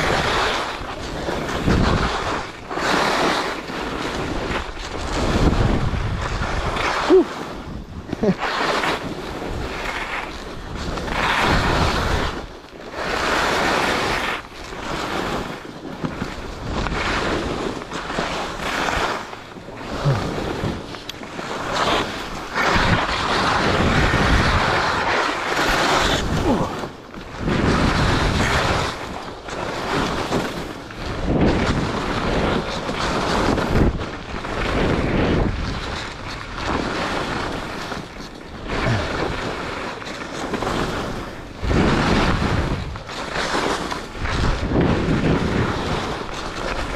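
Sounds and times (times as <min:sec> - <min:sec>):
skis scraping on snow: 0:00.0 - 0:46.9
wind on microphone: 0:00.0 - 0:46.9.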